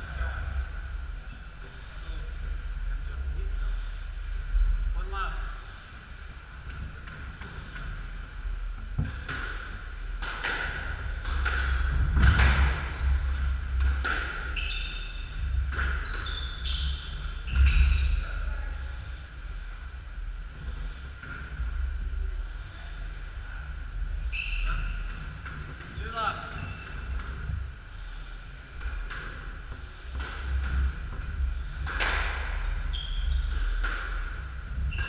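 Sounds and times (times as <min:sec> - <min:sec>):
squash ball hitting rackets and walls: 0:08.9 - 0:14.8, 0:28.8 - 0:35.0
shoes squeaking on wooden floor: 0:14.5 - 0:15.2, 0:15.8 - 0:18.1, 0:32.6 - 0:33.8.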